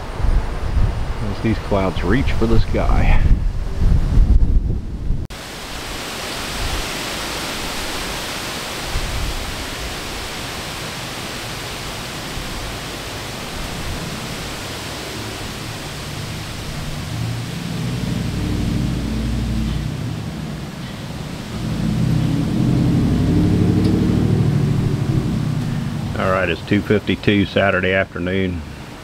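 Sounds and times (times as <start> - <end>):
wind rushing: 0.0 - 10.4, 13.4 - 27.4
low rumble: 15.2 - 27.4.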